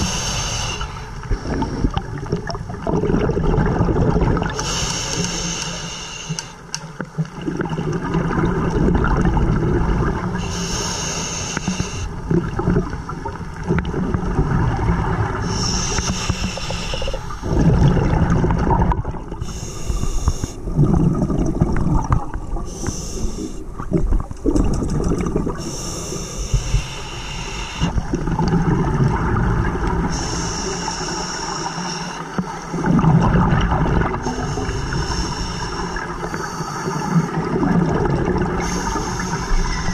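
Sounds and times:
regulator hissing inhale: 0:00.0 - 0:01.8, 0:04.6 - 0:06.7, 0:10.4 - 0:12.2, 0:15.4 - 0:17.6, 0:19.4 - 0:20.6, 0:22.7 - 0:23.7, 0:25.6 - 0:28.0, 0:30.1 - 0:32.9, 0:34.2 - 0:37.4, 0:38.6 - 0:39.9
rush of exhaled bubbles: 0:00.0 - 0:04.8, 0:07.2 - 0:10.9, 0:11.6 - 0:26.2, 0:27.4 - 0:31.0, 0:32.7 - 0:39.9.

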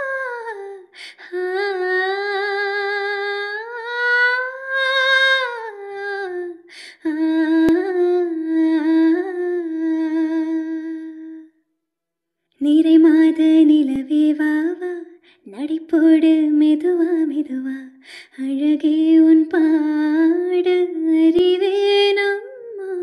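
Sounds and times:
woman breathing: 0:00.9 - 0:01.3, 0:06.7 - 0:07.0, 0:18.0 - 0:18.4.

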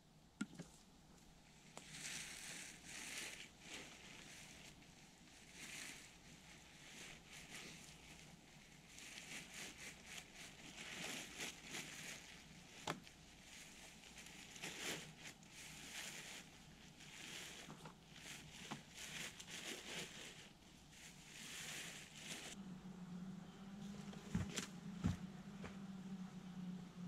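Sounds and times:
nylon hammock rustling: 0:01.6 - 0:22.6.

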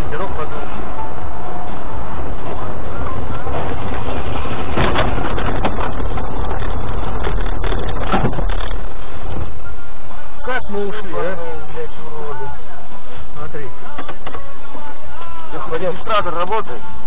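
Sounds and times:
car rumbling over rough ground: 0:00.0 - 0:17.0
car thumps: 0:03.4 - 0:09.6.

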